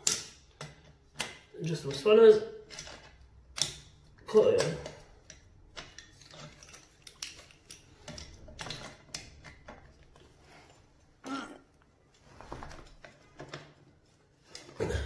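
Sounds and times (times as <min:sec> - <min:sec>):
spanner clicking on metal nut: 0:02.7 - 0:04.0.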